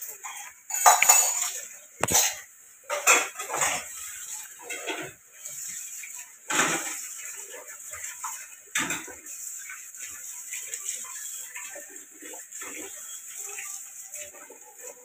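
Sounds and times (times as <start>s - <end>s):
metal kitchenware clattering: 0.0s - 5.2s.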